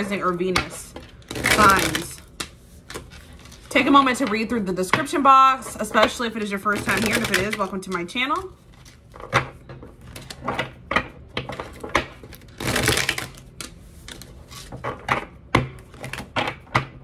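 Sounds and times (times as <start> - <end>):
cards being shuffled: 1.0 - 4.3, 5.9 - 9.4, 11.5 - 15.0.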